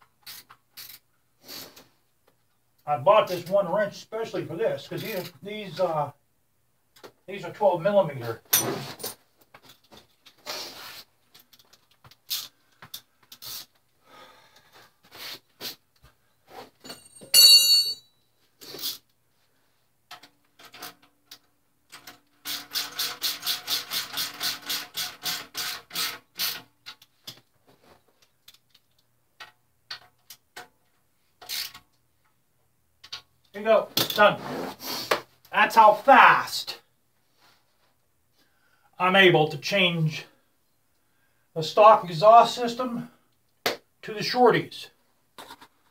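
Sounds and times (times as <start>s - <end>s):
ringing metal clink: 16.8s - 18.1s.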